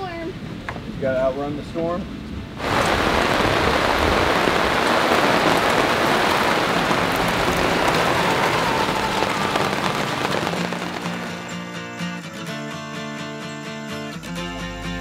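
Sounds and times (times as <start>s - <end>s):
heavy rain on leaves: 2.6s - 11.8s.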